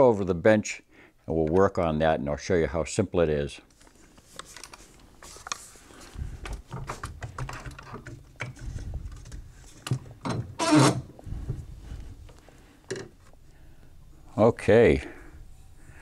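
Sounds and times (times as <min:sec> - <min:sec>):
rifle handling clicks and knocks: 0:06.4 - 0:10.4.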